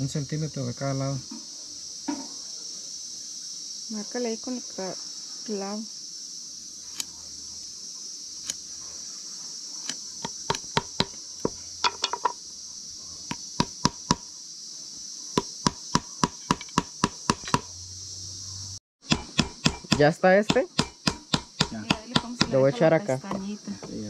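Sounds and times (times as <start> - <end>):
insects droning: 0.0 - 24.0.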